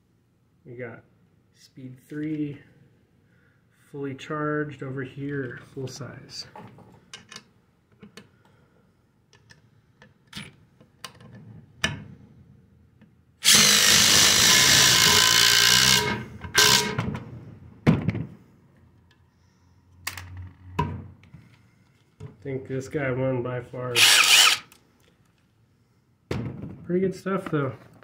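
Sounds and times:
impact drivers driving screws: 0:13.4 - 0:17.2, 0:24.0 - 0:24.8.

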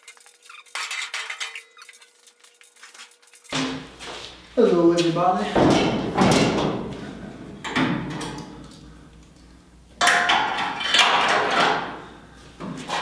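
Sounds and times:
metal scraping clatter: 0:00.0 - 0:03.6.

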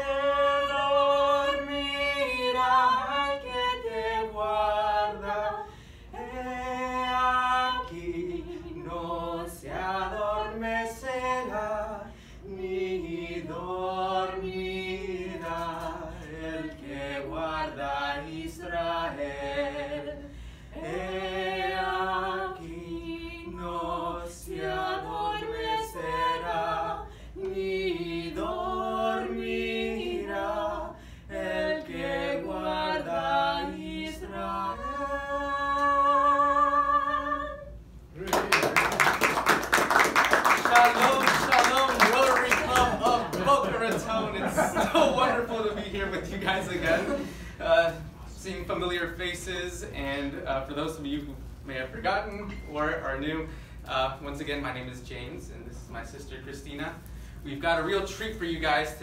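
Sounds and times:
man and woman singing a duet: 0:00.0 - 0:38.6.

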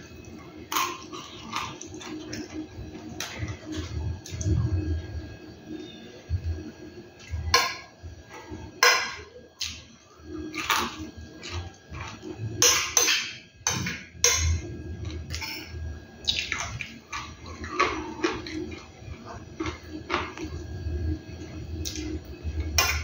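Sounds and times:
chewing: 0:00.2 - 0:04.5, 0:16.2 - 0:20.6.

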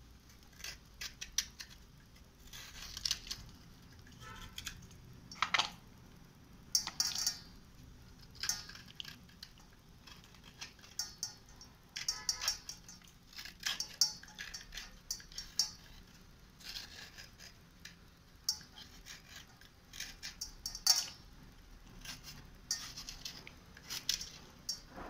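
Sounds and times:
slate scraping: 0:22.0 - 0:25.0.

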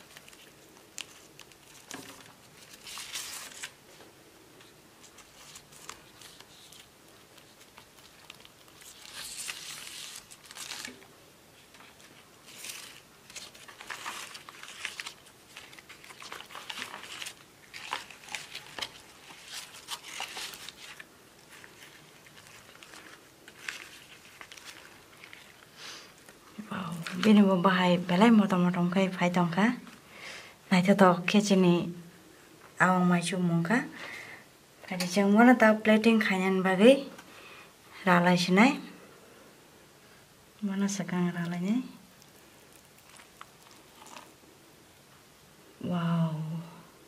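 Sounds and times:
leaf wrapping rustling: 0:00.0 - 0:30.0, 0:40.8 - 0:45.3.

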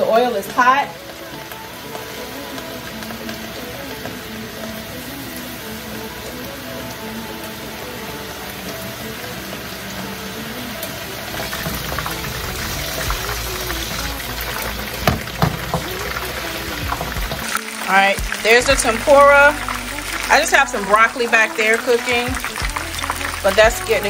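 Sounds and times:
hot oil sizzling: 0:00.0 - 0:24.0
vegetables stir-frying in a wok: 0:00.0 - 0:24.0
wooden spatula knocking wok: 0:11.4 - 0:17.5.

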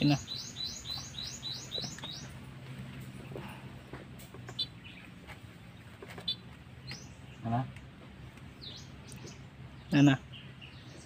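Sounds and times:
bird chirping rising notes: 0:00.0 - 0:07.6.

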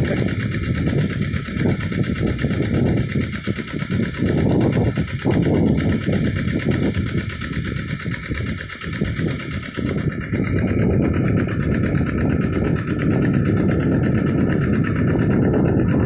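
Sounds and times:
water pump engine running: 0:00.0 - 0:16.0.

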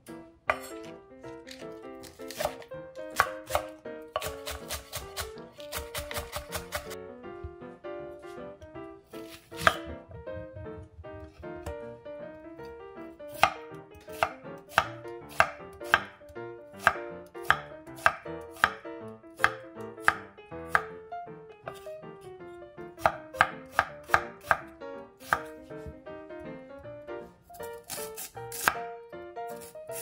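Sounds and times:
knife chopping on wooden board: 0:00.5 - 0:07.0, 0:09.2 - 0:10.0, 0:13.3 - 0:16.2, 0:16.8 - 0:18.8, 0:19.4 - 0:20.9, 0:23.0 - 0:26.0, 0:27.6 - 0:28.8.

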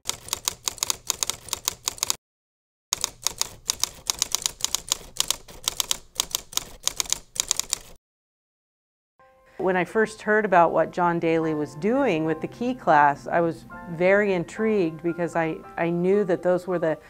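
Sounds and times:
typewriter keystrokes clicking: 0:00.0 - 0:02.2, 0:02.9 - 0:08.0.

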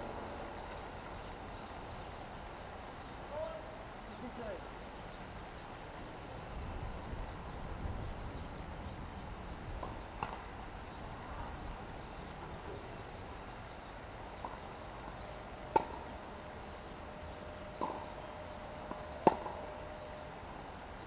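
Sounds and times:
steady background hum: 0:09.4 - 0:21.0
tennis ball knocks: 0:15.7 - 0:16.0, 0:17.8 - 0:18.1, 0:18.9 - 0:19.7.

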